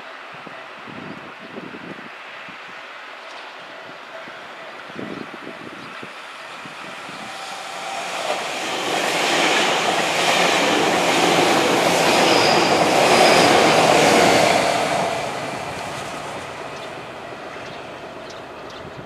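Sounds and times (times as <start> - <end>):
electric train passing: 4.1 - 19.0.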